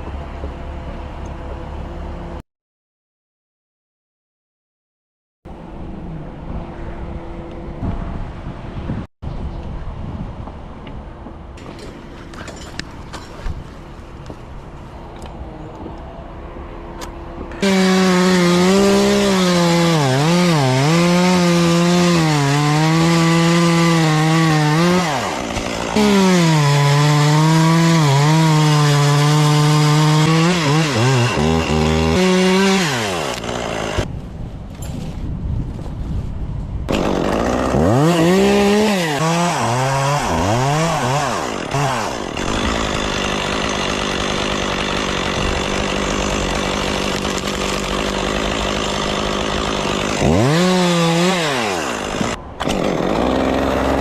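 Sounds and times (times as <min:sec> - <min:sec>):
chainsaw cutting wood: 0:17.0 - 0:34.1, 0:36.9 - 0:54.0.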